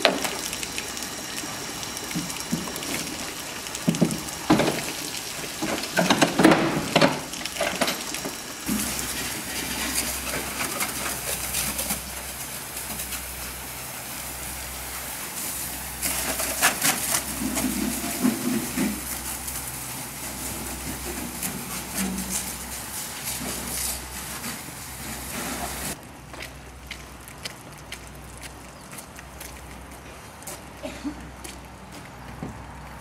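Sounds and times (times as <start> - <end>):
pressure washer spraying metal: 0.0 - 26.0.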